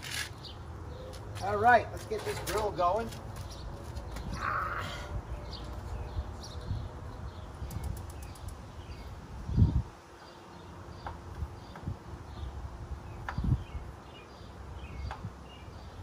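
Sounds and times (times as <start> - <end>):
wind buffeting microphone: 3.5 - 10.0, 11.4 - 14.0.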